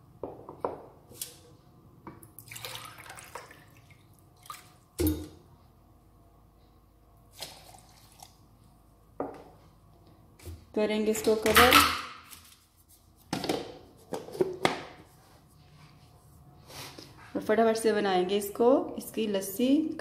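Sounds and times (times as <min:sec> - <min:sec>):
water pouring and splashing: 0:02.4 - 0:04.8.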